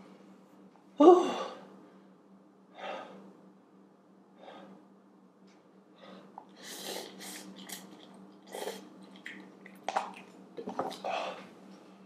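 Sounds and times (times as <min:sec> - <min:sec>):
slurping and chewing noodles: 0:06.4 - 0:11.5.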